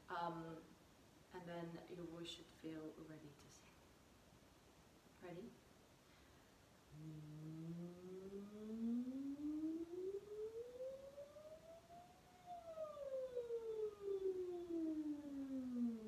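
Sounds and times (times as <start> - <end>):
woman humming a glide: 6.9 - 16.0.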